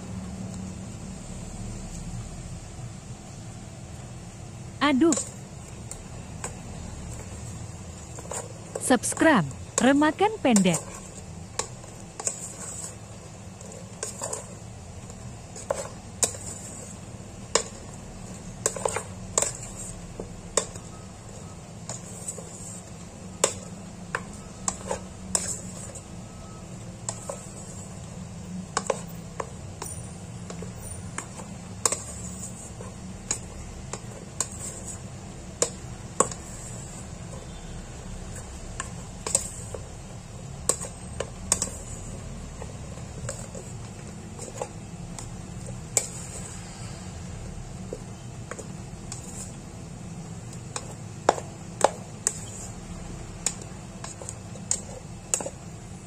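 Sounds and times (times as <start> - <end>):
paddle scraping rice pot: 10.5 - 17.8.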